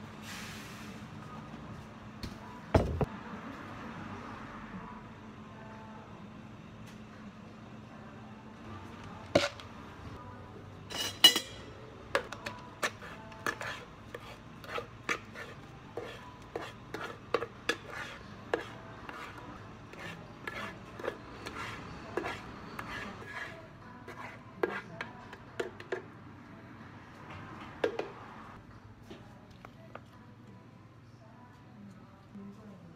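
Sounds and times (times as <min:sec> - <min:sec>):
spoon scraping plastic jar: 0:12.2 - 0:25.1.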